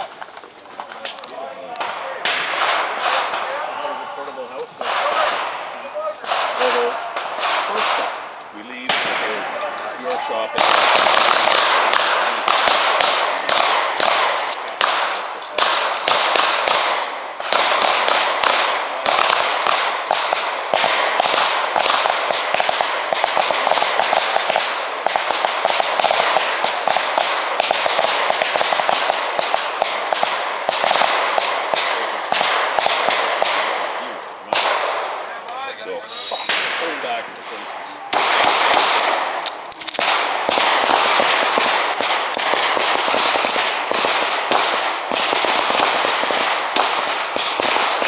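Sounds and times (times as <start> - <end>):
handguns firing rapidly: 6.2 - 8.2, 10.6 - 33.9, 38.1 - 48.0.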